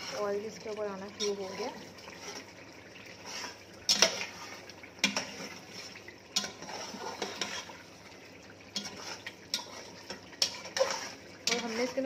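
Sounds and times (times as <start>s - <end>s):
wooden spatula scraping a pot: 0.0s - 8.1s, 8.7s - 12.0s.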